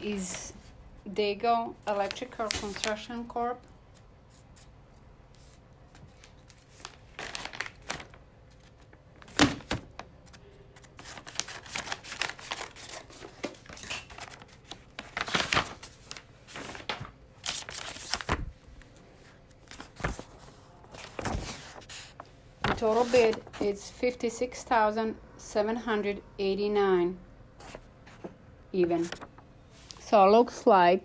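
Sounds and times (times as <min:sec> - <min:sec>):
paper rustling and crinkling: 0:01.9 - 0:03.2, 0:05.3 - 0:23.8, 0:27.6 - 0:30.1.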